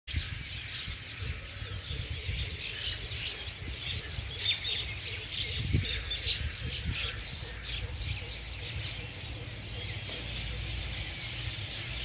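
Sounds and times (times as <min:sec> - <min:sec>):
small birds chirping in chorus: 0:00.1 - 0:12.0.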